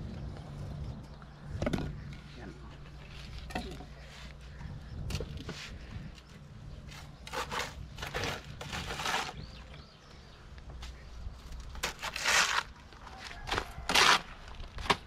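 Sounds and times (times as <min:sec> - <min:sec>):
trowels scraping mortar: 0:06.9 - 0:09.8, 0:11.8 - 0:12.8.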